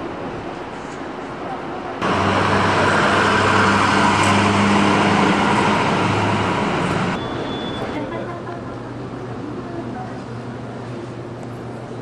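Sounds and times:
road noise rushing: 0.0s - 8.0s
vehicle engine running: 2.0s - 7.2s.

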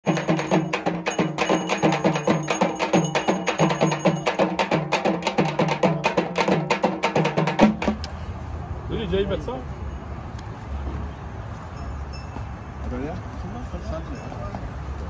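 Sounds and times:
fast ceremonial drumming: 0.0s - 8.0s.

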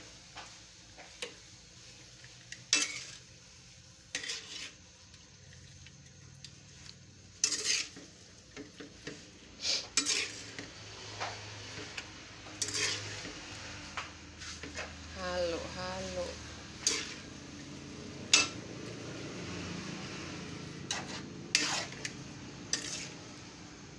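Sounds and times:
metal spoon scraping a metal pan: 1.2s - 3.4s, 4.1s - 4.9s, 6.4s - 17.7s, 18.3s - 18.6s, 20.6s - 23.5s.

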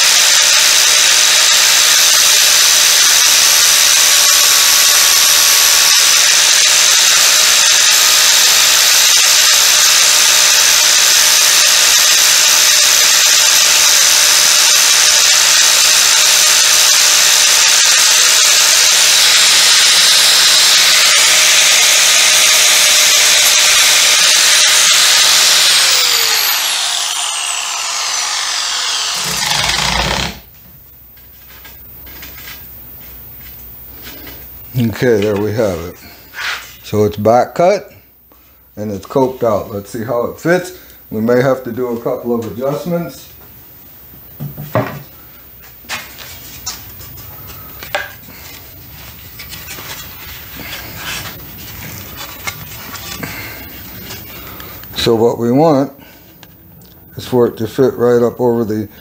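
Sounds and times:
angle grinder grinding trim: 0.0s - 30.5s
grinder disc spinning down: 0.1s - 30.5s.

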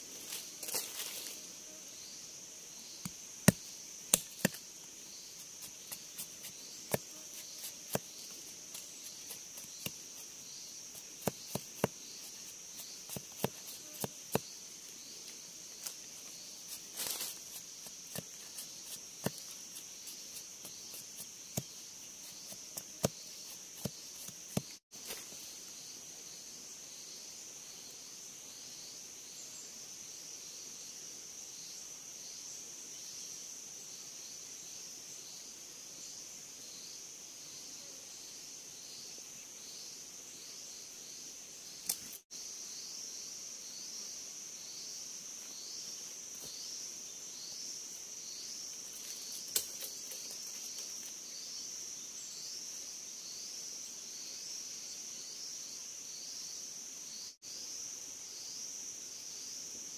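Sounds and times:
forest insects droning: 0.0s - 59.9s
knife chopping bamboo: 3.0s - 4.6s, 12.8s - 14.5s.

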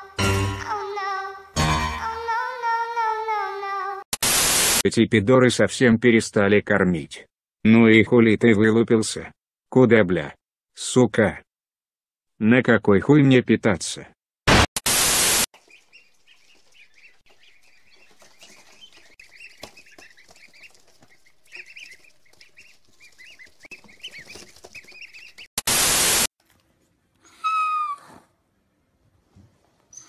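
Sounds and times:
static hiss: 4.2s - 4.8s, 14.8s - 15.5s, 25.6s - 26.3s
young animals squeaking: 15.7s - 25.5s, 27.3s - 28.2s.

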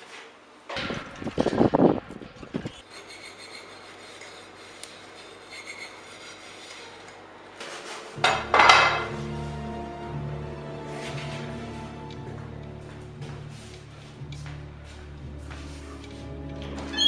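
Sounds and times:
dishes clinking at sink: 8.2s - 9.2s
dark music drone: 8.2s - 17.0s.

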